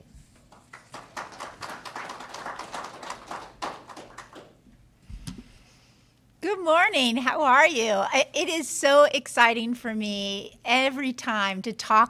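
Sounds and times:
small group applauding: 0:00.3 - 0:04.7.

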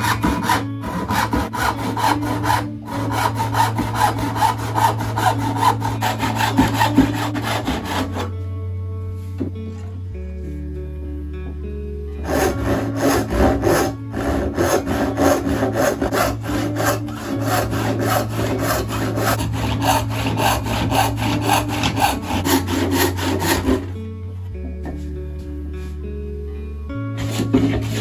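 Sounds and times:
handsaw cutting wood: 0:00.0 - 0:08.3, 0:12.2 - 0:23.9, 0:27.2 - 0:28.0
background music: 0:00.0 - 0:28.0.

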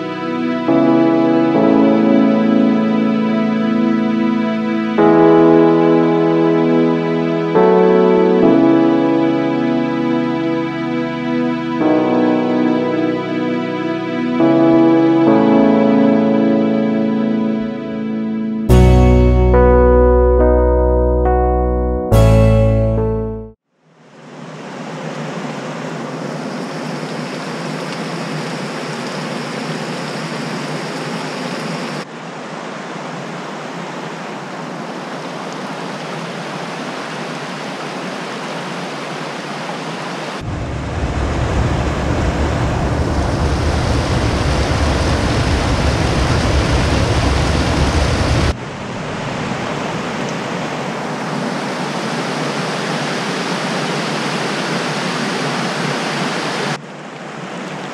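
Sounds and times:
deep low rumble: 0:40.4 - 0:48.2
creek water rushing over rocks: 0:49.2 - 0:57.9.

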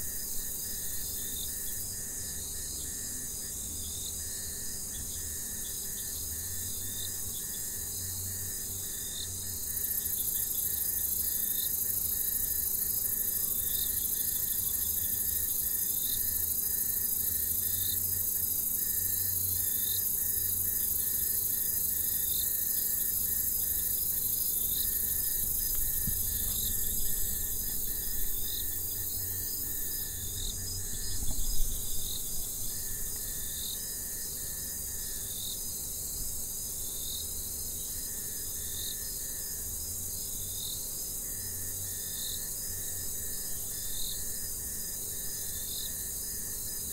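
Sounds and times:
crickets trilling: 0:00.0 - 0:46.9
short insect chirp: 0:03.8 - 0:35.8.

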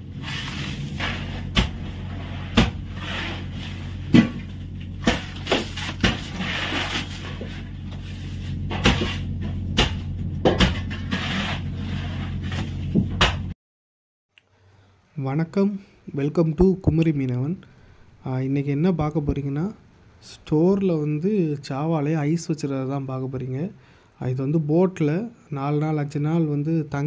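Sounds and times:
low hum: 0:00.0 - 0:13.6
shovels chopping ice: 0:02.5 - 0:03.4, 0:04.1 - 0:07.4, 0:08.7 - 0:09.2.

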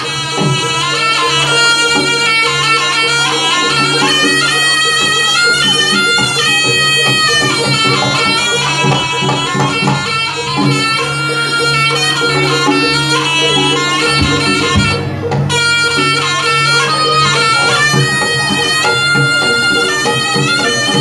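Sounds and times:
drum strokes: 0:00.0 - 0:21.0
shawm playing nasal melody: 0:00.0 - 0:21.0
held low tones: 0:12.2 - 0:21.0.

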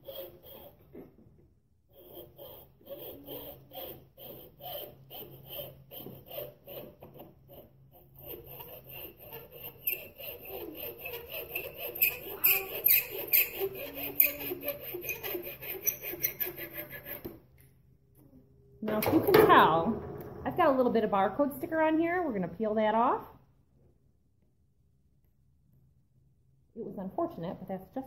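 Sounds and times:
hacksaw cutting wood: 0:00.0 - 0:01.0, 0:01.9 - 0:17.4.

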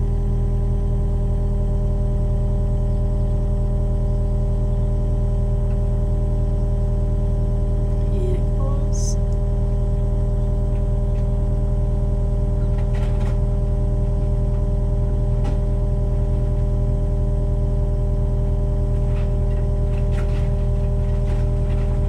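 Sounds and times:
excavator engine humming: 0:07.7 - 0:10.3.

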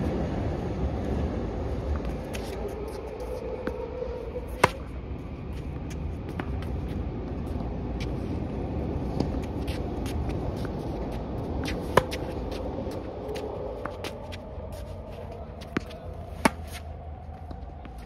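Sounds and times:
steady low rumble: 0:00.0 - 0:18.0
tennis racket hitting ball: 0:04.5 - 0:04.9, 0:11.6 - 0:12.4, 0:15.6 - 0:16.8.

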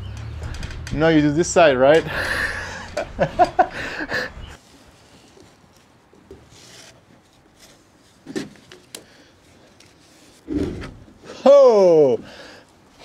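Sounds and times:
rope rubbing and rustling: 0:04.5 - 0:11.2.

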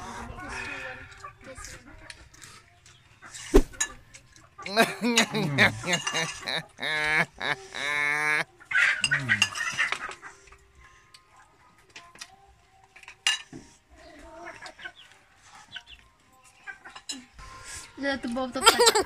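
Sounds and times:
chicken calling: 0:04.7 - 0:08.4.

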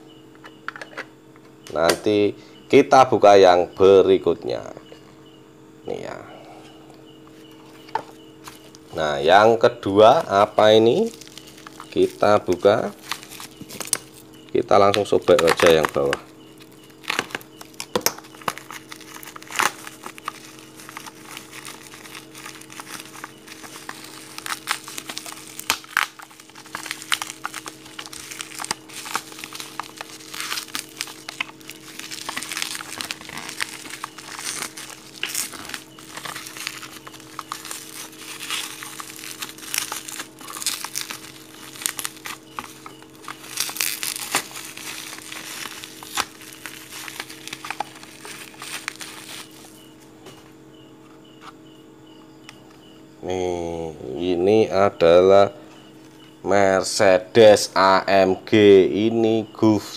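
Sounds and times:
steady low hum: 0:00.0 - 0:59.9
bubble wrap crinkling and snapping: 0:07.7 - 0:09.1, 0:09.9 - 0:50.1.

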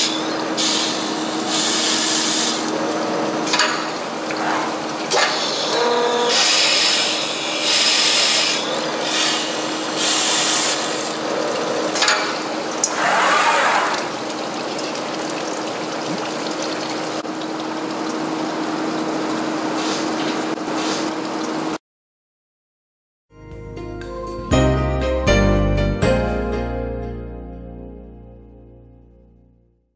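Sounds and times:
core drill grinding glass: 0:06.3 - 0:11.2.

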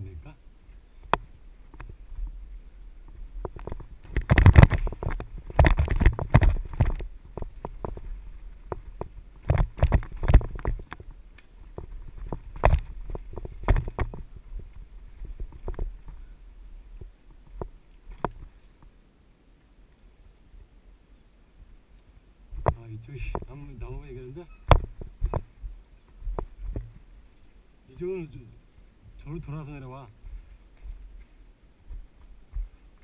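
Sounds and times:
mountain bike rattling and knocking: 0:03.4 - 0:11.1, 0:11.7 - 0:15.9.

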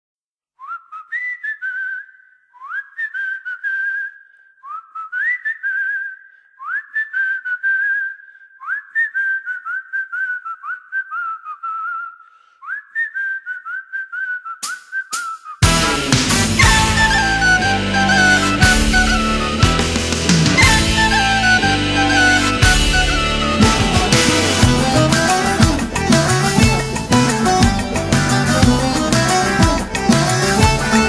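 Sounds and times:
whistled melody with trills: 0:00.6 - 0:31.0
loud hit: 0:15.6 - 0:31.0.

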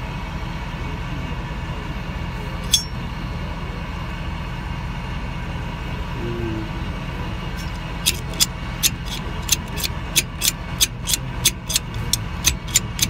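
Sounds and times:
steady low hum: 0:00.0 - 0:13.0
sharp metallic clink: 0:02.6 - 0:03.1.

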